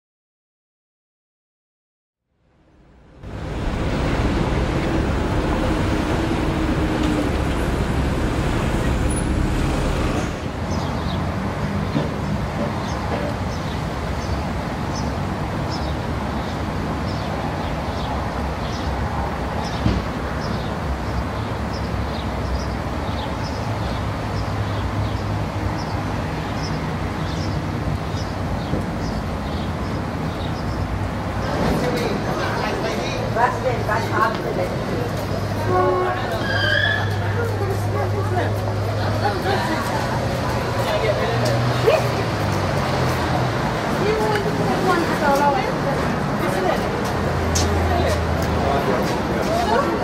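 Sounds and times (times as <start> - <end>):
road traffic rumble: 2.8 - 50.0
loud rushing noise: 3.1 - 11.9.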